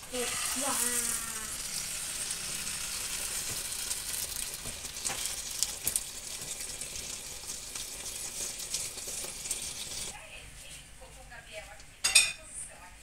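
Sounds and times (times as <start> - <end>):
batter sizzling in frying pan: 0.0 - 10.2.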